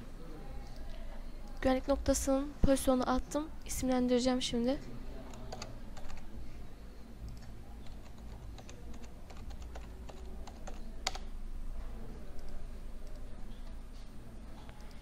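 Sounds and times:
computer keyboard typing: 5.2 - 6.3, 7.3 - 11.3.

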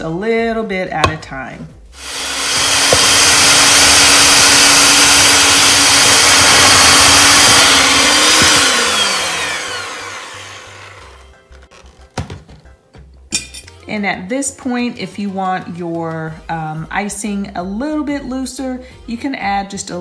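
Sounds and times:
electric hand mixer running: 2.0 - 11.3.

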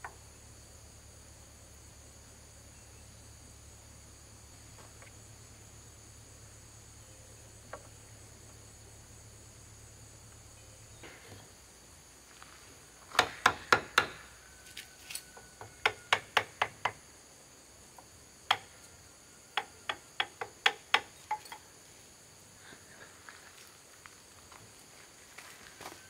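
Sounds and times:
high insect chirr: 0.0 - 26.0
sharp knocks: 13.1 - 14.3.

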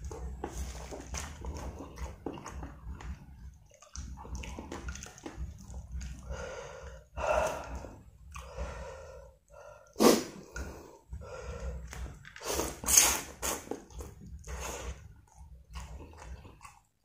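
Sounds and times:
low steady hum: 0.0 - 17.0
man chewing noodles: 0.0 - 17.0
heavy breathing: 6.0 - 12.9
short sharp sniff: 10.0 - 10.4, 12.4 - 13.7.

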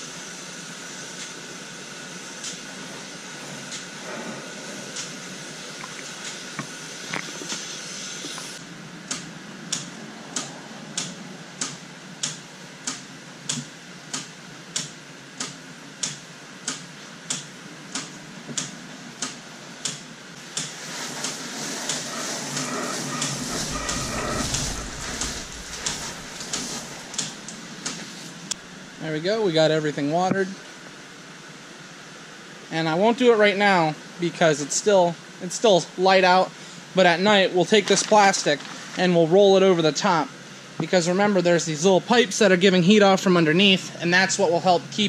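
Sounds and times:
water spraying from hose wand: 20.4 - 28.6.

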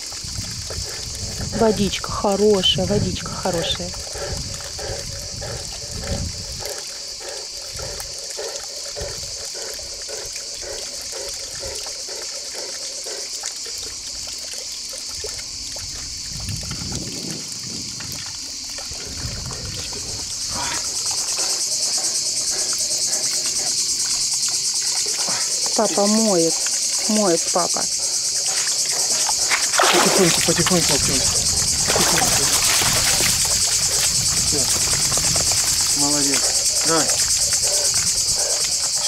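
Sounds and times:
insects chirring: 0.0 - 39.0
water trickling and sloshing: 0.0 - 39.0
dog splashing in water: 28.4 - 39.0.

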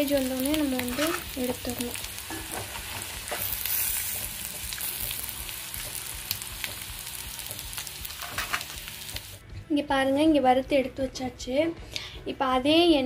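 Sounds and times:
hot oil sizzling: 0.0 - 9.4
oil popping and crackling: 0.0 - 9.4.

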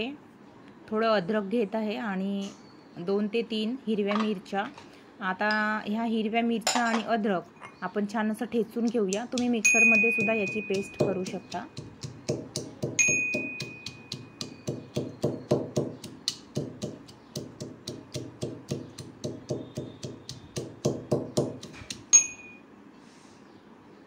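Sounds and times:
steel pestle pounding in mortar: 8.8 - 22.4.

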